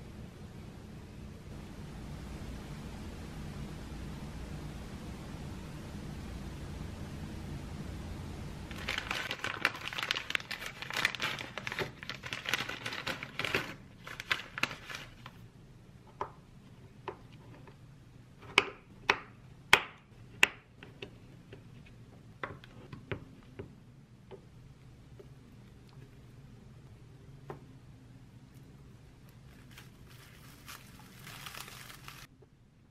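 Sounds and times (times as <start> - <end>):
low hiss: 0.0 - 9.3.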